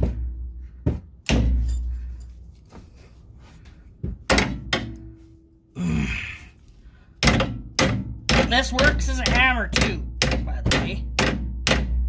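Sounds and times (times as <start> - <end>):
hammer knocking on metal spring: 7.2 - 12.0.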